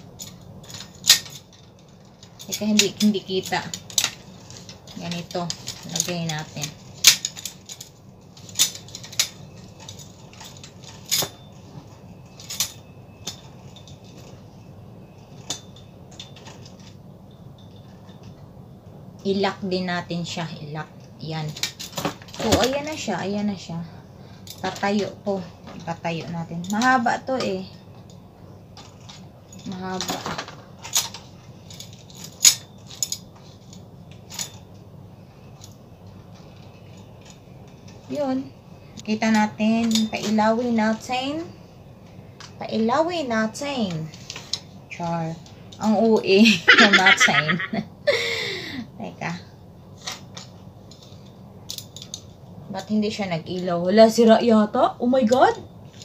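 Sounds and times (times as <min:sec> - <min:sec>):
handling sounds: 0:00.0 - 0:19.3, 0:24.4 - 0:47.8
low steady hum: 0:00.0 - 0:56.0.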